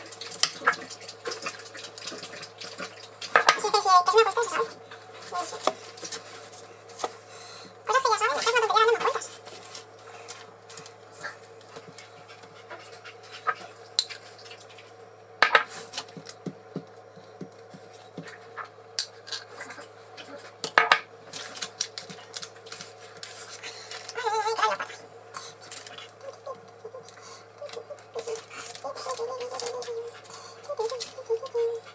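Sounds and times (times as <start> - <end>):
steady low hum: 0.0 - 31.9
wavering voice-like sound: 24.1 - 25.1, 26.1 - 31.9.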